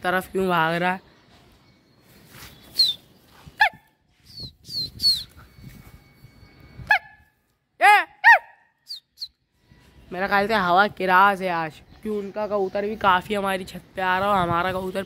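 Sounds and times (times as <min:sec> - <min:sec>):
high downward-sliding chirps: 0:04.2 - 0:07.5
sharp animal yelps: 0:08.2 - 0:09.0.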